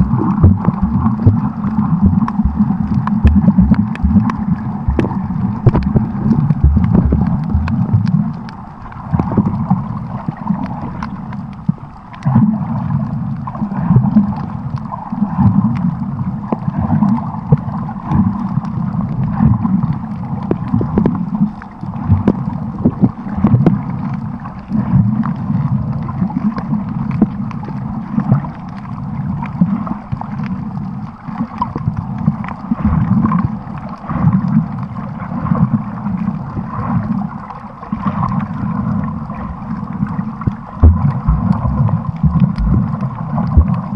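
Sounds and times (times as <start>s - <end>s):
muffled underwater sloshing: 0.0s - 43.9s
small underwater clicks: 0.0s - 43.9s.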